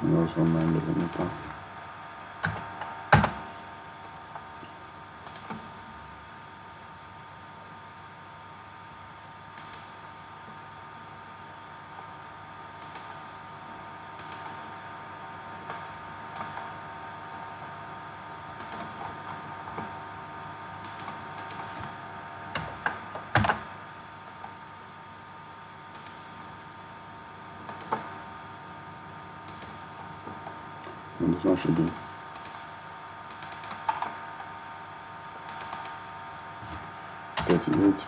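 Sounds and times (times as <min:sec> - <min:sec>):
faint background hum: 0:00.0 - 0:38.0
mouse and keyboard clicks: 0:05.2 - 0:05.6, 0:09.6 - 0:09.9, 0:12.8 - 0:13.1, 0:14.2 - 0:14.5, 0:18.6 - 0:19.0, 0:20.8 - 0:21.7, 0:25.9 - 0:26.2, 0:27.7 - 0:28.0, 0:29.5 - 0:29.8, 0:33.3 - 0:34.1, 0:35.5 - 0:36.0.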